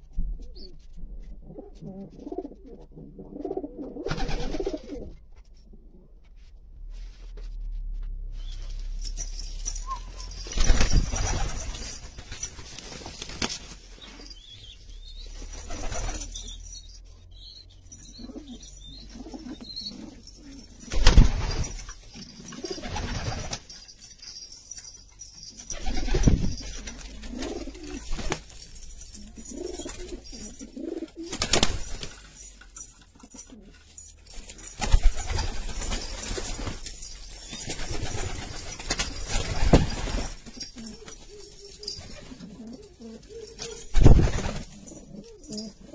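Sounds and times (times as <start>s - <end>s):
pigeons cooing: 1.4s - 5.2s, 18.0s - 20.9s, 25.7s - 28.4s, 29.1s - 31.7s, 39.7s - 45.9s.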